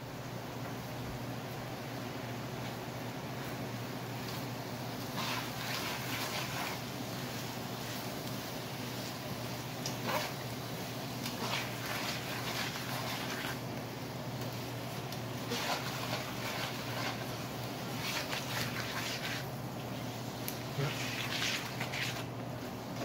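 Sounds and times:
apple slices sizzling in a pan: 1.7s - 23.0s
spatula scraping a pan: 5.0s - 6.9s, 10.0s - 10.4s, 11.2s - 13.6s, 15.4s - 19.5s, 20.8s - 22.3s.

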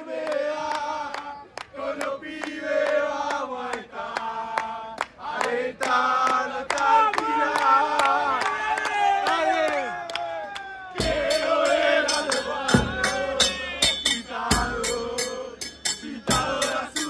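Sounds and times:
men chanting in unison: 0.0s - 10.2s, 10.9s - 17.0s
handclaps: 0.2s - 11.1s
bass drum beating: 11.0s - 11.7s, 12.6s - 16.8s.

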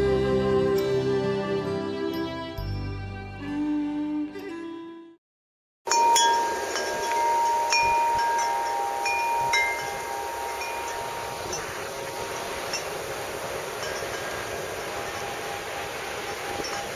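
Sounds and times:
music: 0.0s - 5.2s
steady wind-like hiss: 5.9s - 16.9s
wind chimes ringing: 5.9s - 16.9s.

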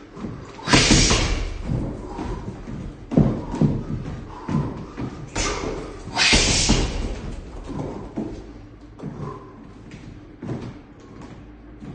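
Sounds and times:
punches thudding into heavy bag: 0.6s - 2.6s, 5.3s - 8.3s.

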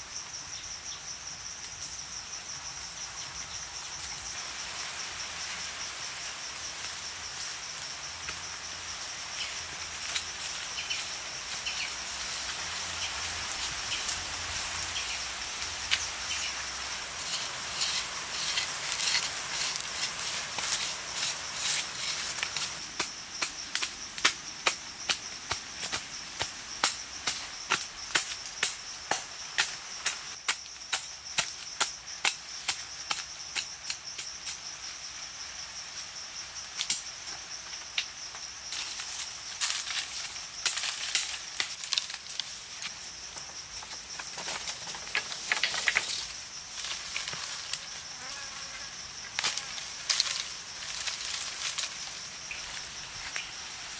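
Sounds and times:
machete chopping soil: 17.3s - 34.4s.

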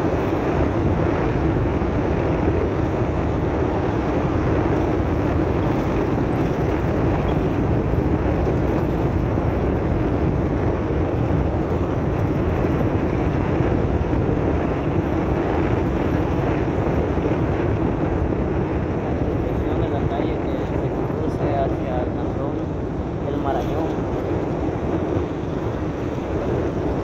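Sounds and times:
vehicle engine: 0.0s - 21.3s
tyres rolling on dirt road: 0.0s - 27.0s.

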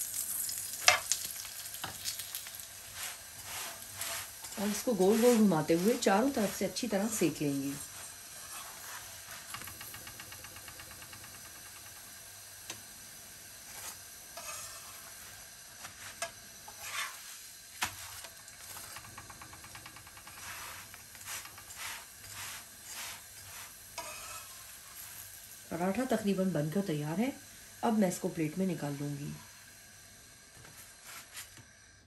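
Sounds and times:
ghee sizzling on a griddle: 0.0s - 32.0s
metal spatula scraping griddle: 1.8s - 9.7s, 13.6s - 19.0s, 20.2s - 25.3s.

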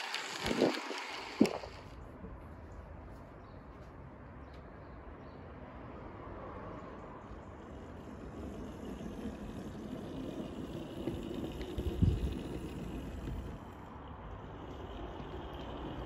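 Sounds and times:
model locomotive motor rumbling: 0.0s - 2.0s, 7.4s - 16.0s.

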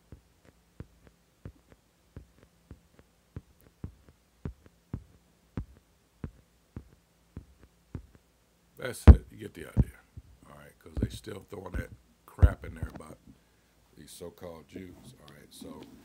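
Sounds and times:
low steady hum: 0.0s - 16.0s
faint soft taps: 0.1s - 8.2s.

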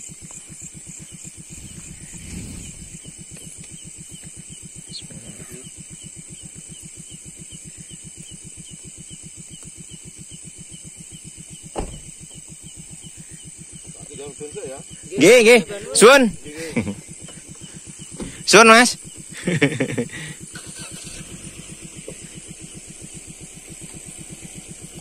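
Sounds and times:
engine idling: 0.0s - 25.0s
night insects chirring: 0.0s - 25.0s
loud thump: 11.7s - 12.1s.

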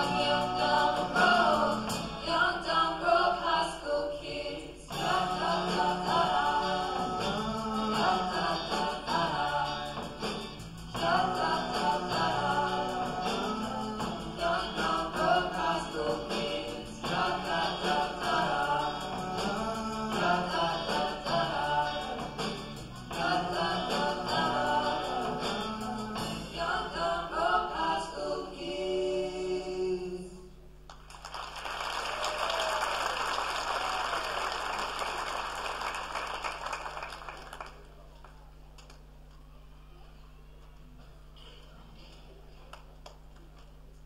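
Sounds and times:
singers with live band: 0.0s - 30.6s
audience applause: 30.9s - 38.4s.

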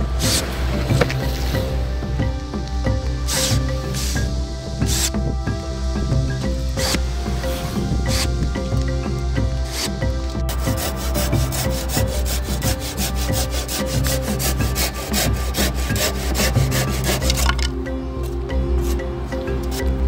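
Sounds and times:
background music: 0.0s - 20.0s
hand saw cutting wood: 9.7s - 17.7s.

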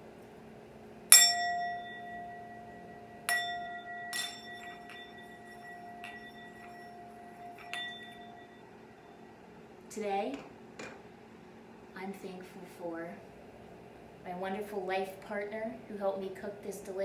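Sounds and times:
singing bowl ringing: 1.1s - 9.5s.

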